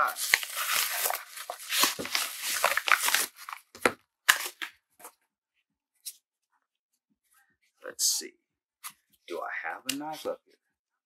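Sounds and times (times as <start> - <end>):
sharp paper crackles: 0.0 - 3.7
paper crinkling and tearing: 0.0 - 4.7.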